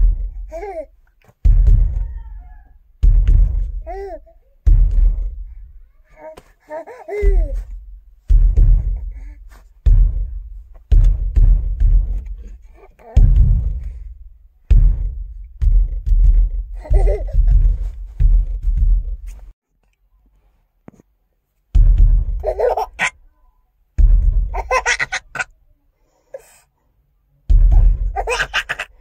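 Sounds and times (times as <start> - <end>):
heavy low thuds: 0.0 - 0.8, 1.4 - 5.9, 7.1 - 19.6, 21.7 - 23.1, 24.0 - 25.4, 27.5 - 29.0.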